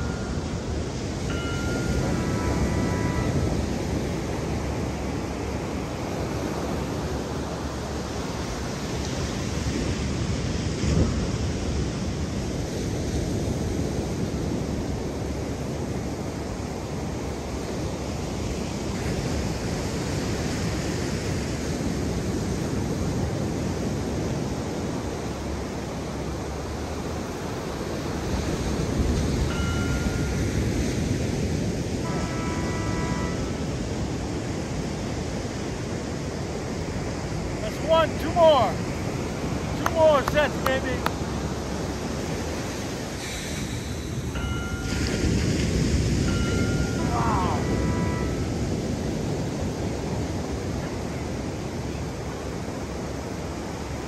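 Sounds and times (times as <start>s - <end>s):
short electronic beeps: 0.0s - 0.6s, 1.3s - 3.5s, 29.5s - 30.5s, 44.4s - 45.2s, 46.3s - 48.5s
ocean surf on beach: 0.0s - 54.0s.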